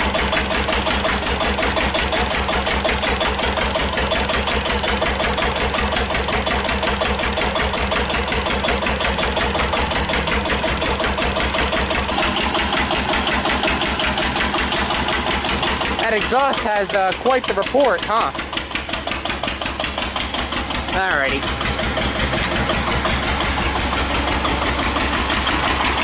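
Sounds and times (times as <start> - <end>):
diesel engine running: 0.0 - 26.0
sharp exhaust reports: 0.0 - 26.0.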